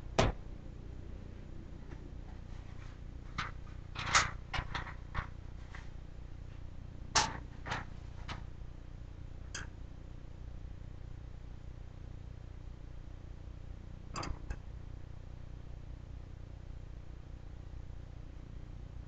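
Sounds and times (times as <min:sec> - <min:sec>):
objects clicking and tapping: 0:03.4 - 0:05.3.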